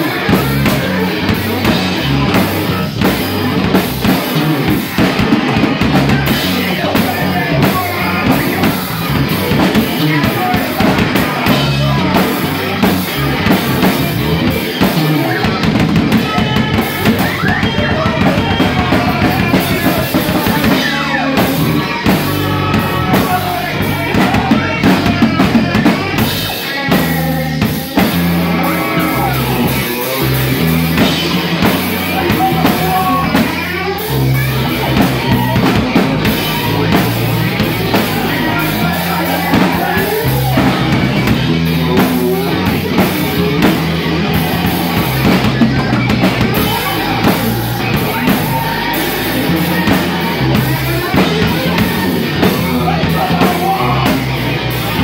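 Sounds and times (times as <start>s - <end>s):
drum kit pounding: 0.0s - 55.0s
live rock band playing: 0.0s - 55.0s.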